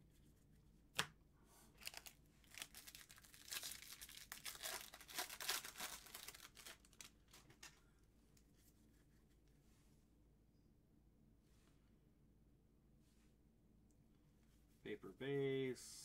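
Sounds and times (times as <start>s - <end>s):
wrapper tearing and crinkling: 1.8s - 7.7s.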